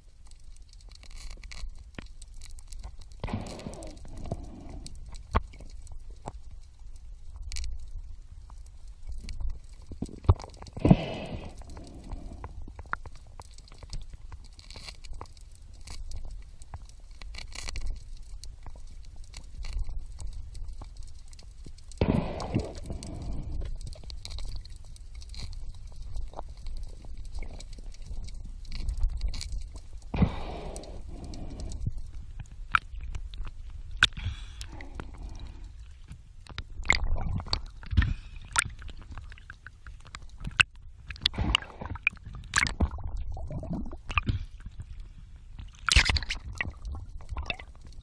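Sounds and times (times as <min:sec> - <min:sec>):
underwater clicks crackling: 0:00.1 - 0:48.0
water gurgling and sloshing: 0:22.0 - 0:48.0.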